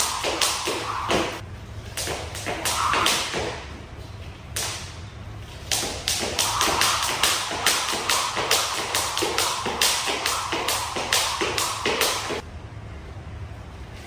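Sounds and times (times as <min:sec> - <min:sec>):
jump rope slapping wooden floor: 0:00.0 - 0:01.4, 0:02.0 - 0:03.7, 0:05.7 - 0:12.4.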